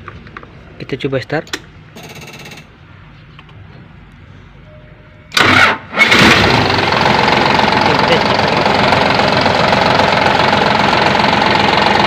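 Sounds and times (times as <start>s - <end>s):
diesel engine running: 5.3s - 12.0s
ignition buzz: 5.3s - 12.0s
starter motor cranking: 5.3s - 12.0s.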